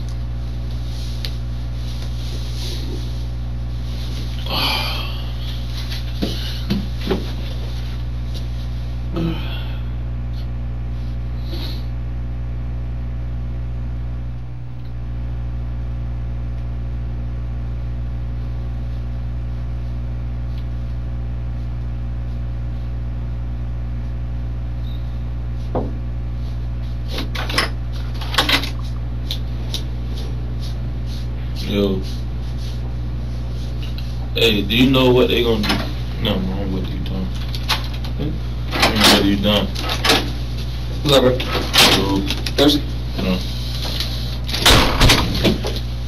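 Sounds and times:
low room hum: 0.0s - 46.0s
knocks and rustles in chair: 5.8s - 8.4s, 25.6s - 26.1s.

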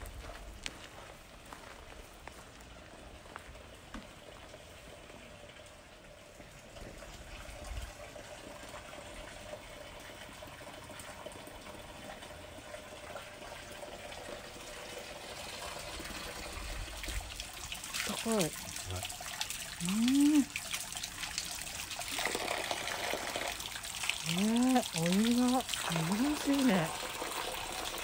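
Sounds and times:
water splashing into stone basin: 14.2s - 28.0s.

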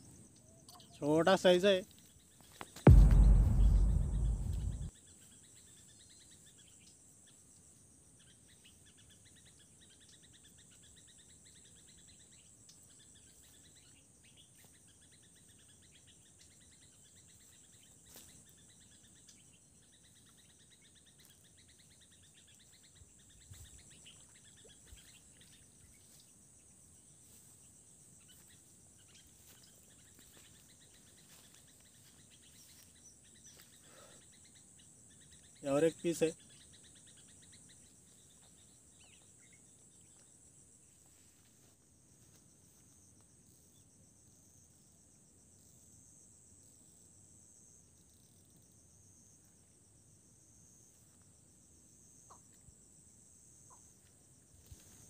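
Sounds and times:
faint bird chirps: 0.0s - 2.5s, 28.2s - 40.3s
low rumble on microphone: 2.9s - 4.9s
insects droning: 15.3s - 55.0s.

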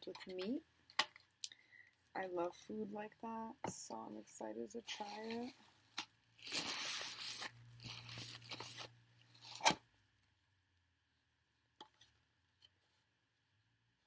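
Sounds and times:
food packaging rustling: 4.9s - 9.8s.

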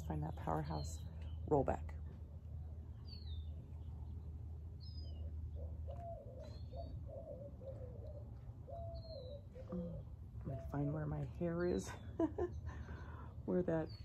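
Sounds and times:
birds chirping: 0.0s - 14.0s
steady low hum: 0.0s - 14.0s.

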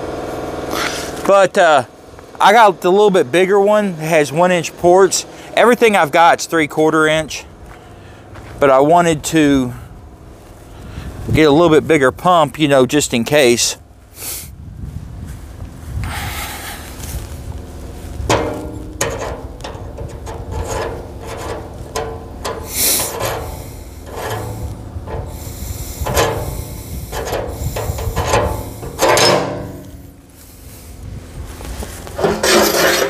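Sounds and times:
steady low hum: 0.0s - 12.5s, 13.1s - 33.0s
hose rubbing and scraping on drum: 16.4s - 31.0s, 31.6s - 33.0s.

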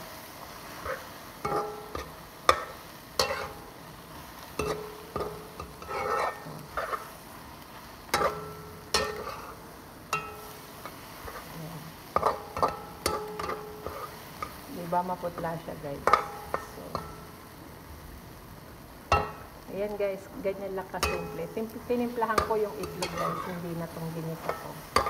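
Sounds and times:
food sizzling in a pan: 0.0s - 25.0s
metal utensil scraping a wok: 0.6s - 7.3s, 8.1s - 17.4s, 21.0s - 25.0s.

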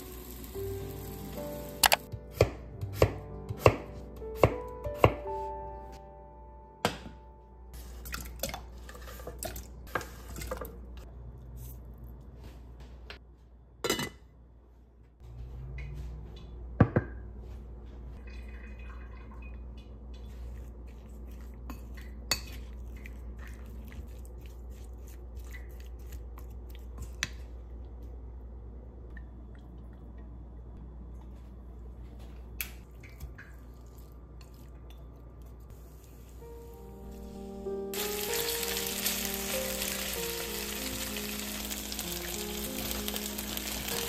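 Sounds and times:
low steady hum: 6.0s - 38.0s
wooden spoon stirring in steel pot: 20.1s - 27.4s
chicken pieces worked in ceramic bowl: 20.1s - 27.6s.

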